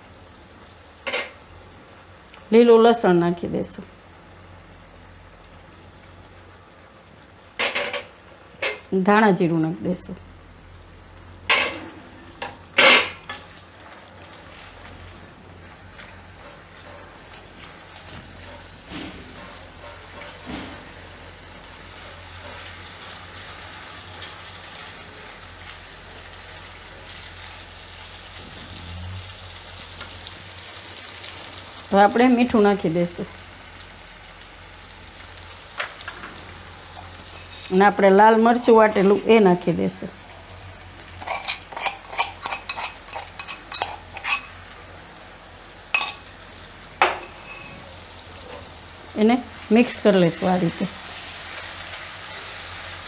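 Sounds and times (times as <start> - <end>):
potatoes sizzling in oil: 0.0 - 53.0
spatula stirring in wok: 41.2 - 44.6.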